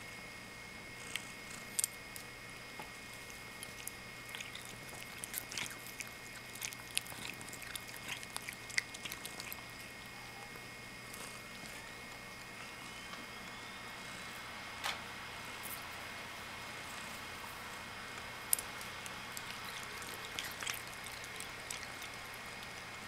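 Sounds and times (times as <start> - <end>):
cat chewing grass: 1.0 - 10.2, 16.6 - 23.0.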